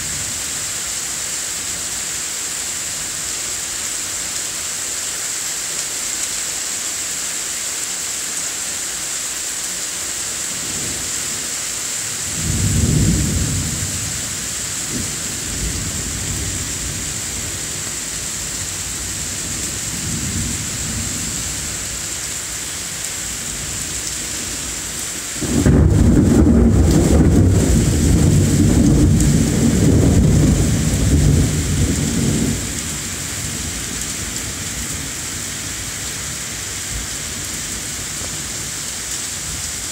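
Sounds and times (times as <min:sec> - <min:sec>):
steady rain hissing: 0:00.0 - 0:39.9
thunder rumbling: 0:12.4 - 0:17.8, 0:25.4 - 0:34.9.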